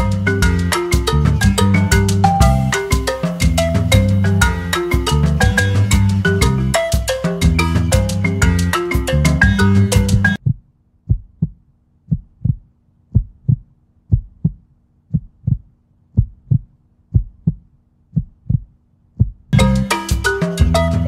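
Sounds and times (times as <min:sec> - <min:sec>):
marimba music: 0:00.0 - 0:10.4, 0:19.6 - 0:21.0
heartbeat double thumps: 0:10.0 - 0:19.7.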